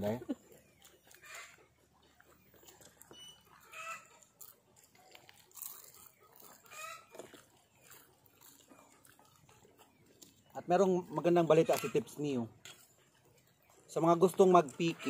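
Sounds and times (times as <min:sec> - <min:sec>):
chickens clucking: 0:00.0 - 0:15.0
soft eating sounds: 0:00.0 - 0:15.0.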